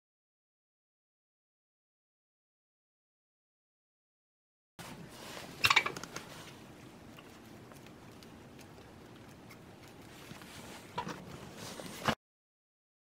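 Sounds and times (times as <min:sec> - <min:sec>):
hens pecking: 0:04.8 - 0:12.0
fodder rustling: 0:04.8 - 0:12.2.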